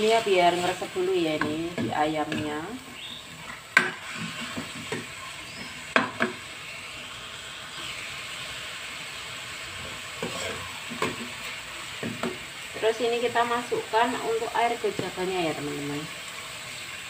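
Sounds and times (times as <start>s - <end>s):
chicken sizzling in a wok: 0.0s - 17.0s
metal ladle knocking pan: 3.7s - 5.1s, 5.9s - 6.4s.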